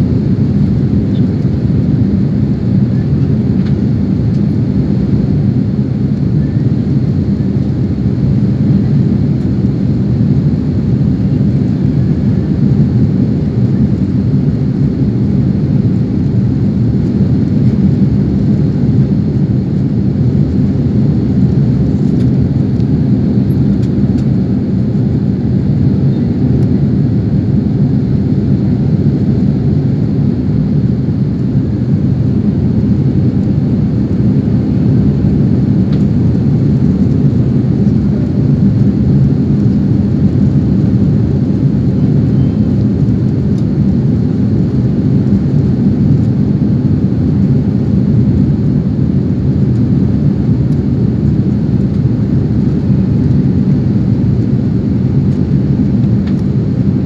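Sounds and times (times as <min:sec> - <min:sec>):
jet airliner cabin rumble: 0:00.0 - 0:57.0.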